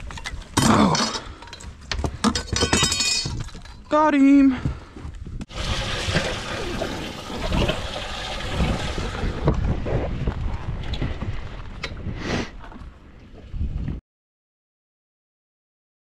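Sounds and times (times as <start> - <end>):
wind buffeting microphone: 5.0 - 14.0
water rushing and splashing: 5.5 - 9.4.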